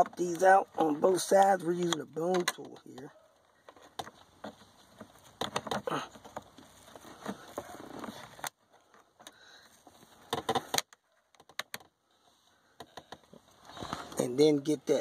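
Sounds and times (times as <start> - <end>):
plastic tool scraping plastic caps: 0.0 - 8.6
rustling: 0.0 - 15.0
sharp plastic clicks: 10.3 - 11.9.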